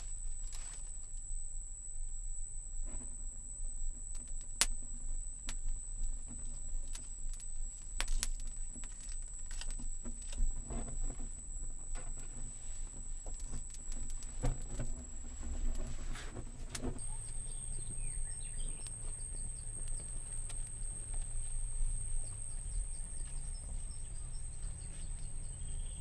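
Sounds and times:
leafy branch clicking and rustling: 0:00.0 - 0:01.2, 0:05.4 - 0:25.9
high-pitched insect drone: 0:17.0 - 0:26.0.

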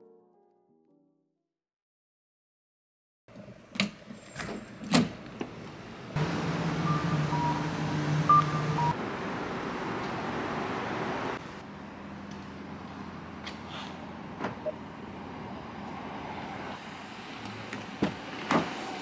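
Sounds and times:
low engine hum: 0:06.0 - 0:18.3.

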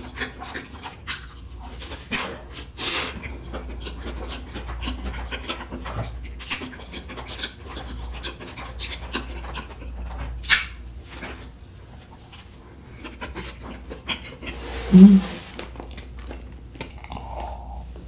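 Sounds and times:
wet chewing with mouth clicks: 0:00.1 - 0:10.6, 0:15.6 - 0:18.0.

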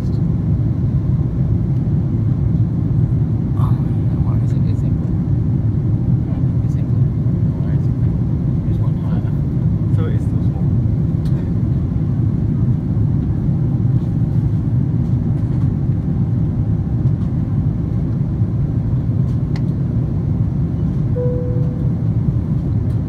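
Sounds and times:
jet engine cabin rumble: 0:00.0 - 0:23.0
brief steady tone: 0:21.2 - 0:22.1.

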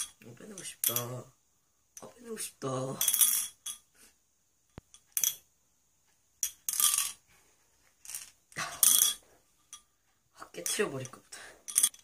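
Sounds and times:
marble rattling inside glass bottle: 0:03.0 - 0:03.8, 0:06.4 - 0:07.2, 0:08.0 - 0:09.8, 0:10.5 - 0:12.0.

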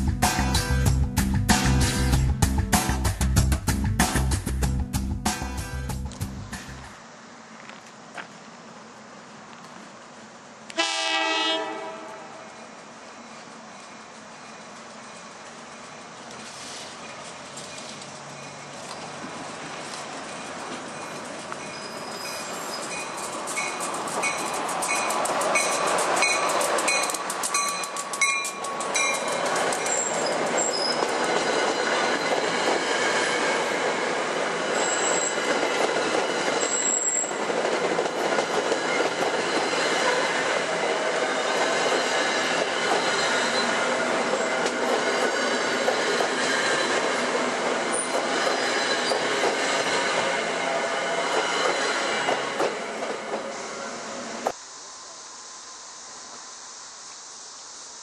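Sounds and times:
train rumbling past: 0:00.0 - 0:57.9
wheel squeals: 0:12.6 - 0:33.6, 0:34.7 - 0:37.5, 0:41.2 - 0:50.4.

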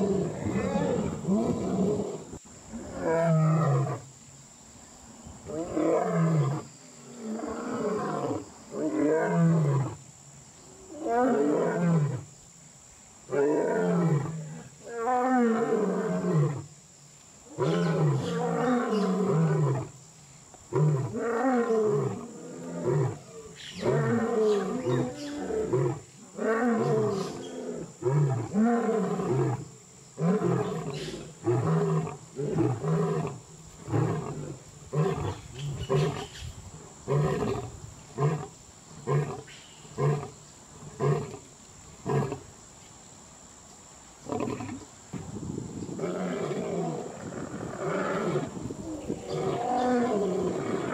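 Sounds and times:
lion roaring and grunting: 0:00.0 - 0:04.0, 0:45.9 - 0:50.9.

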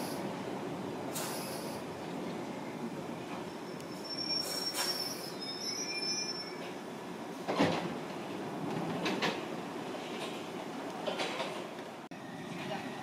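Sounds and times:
train hiss with high squealing: 0:01.1 - 0:01.8, 0:03.4 - 0:06.8
train doors knocking open: 0:07.4 - 0:08.0, 0:08.7 - 0:09.5.

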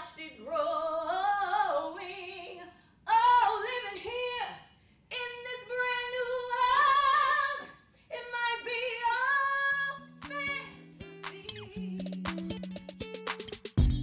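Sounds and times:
woman singing unaccompanied: 0:00.0 - 0:12.2
electronic music with clicking beat: 0:11.2 - 0:14.0.

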